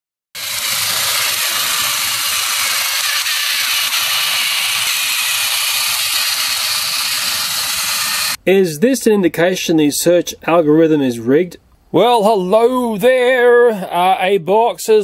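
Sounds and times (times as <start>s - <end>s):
toy train motor whirring: 0.4s - 8.4s.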